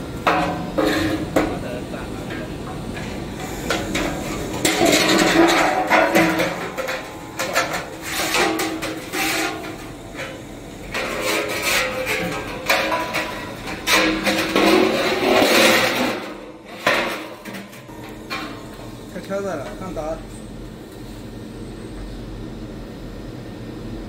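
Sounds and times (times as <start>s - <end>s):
metal clanks and scrapes: 0.2s - 20.4s
metal knocks: 2.4s - 19.0s.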